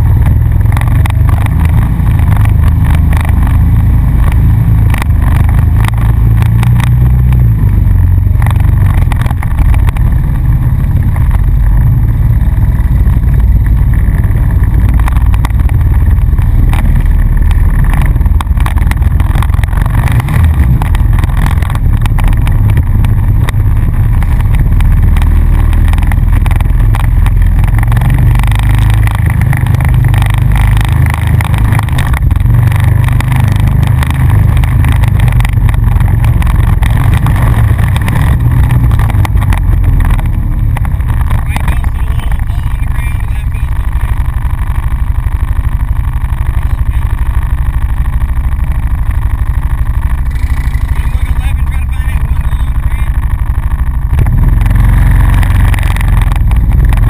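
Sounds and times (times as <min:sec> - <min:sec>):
knocks and rattles over bumps: 0:00.0 - 0:42.5
atv engine running: 0:00.0 - 0:57.0.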